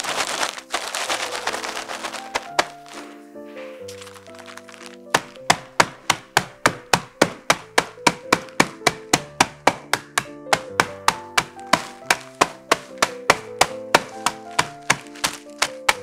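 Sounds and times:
rolling pin knocking on board: 5.1 - 16.0.

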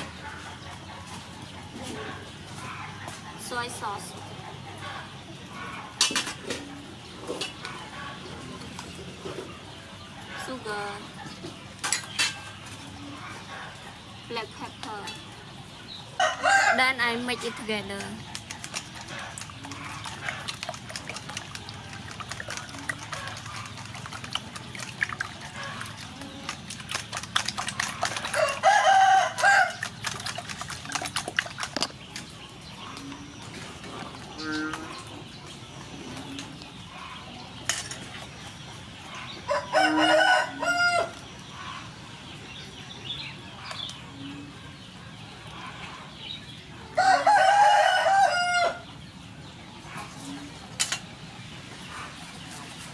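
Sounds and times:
rooster crowing: 16.2 - 16.8, 28.3 - 29.8, 39.5 - 41.2, 47.0 - 48.8
whisk beating in metal bowl: 18.6 - 31.8.

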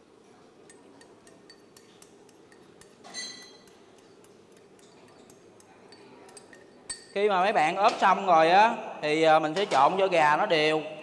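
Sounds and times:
dishes clinking: 0.5 - 8.2.

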